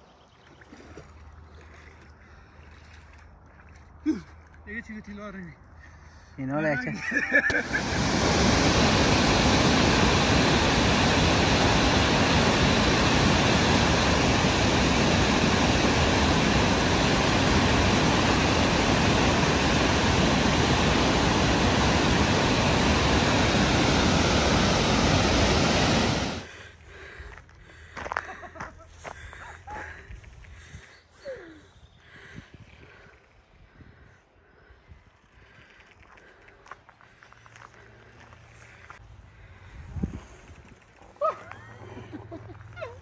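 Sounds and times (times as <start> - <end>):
water rushing over a weir: 7.2 - 26.5.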